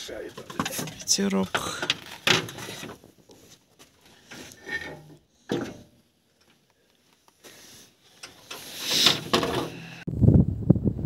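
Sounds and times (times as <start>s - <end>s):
hand tools scraping and rubbing: 2.4s - 5.8s, 7.4s - 10.1s
tool clunk: 4.4s - 6.0s, 8.2s - 10.0s
wind hissing on microphone: 9.9s - 11.0s.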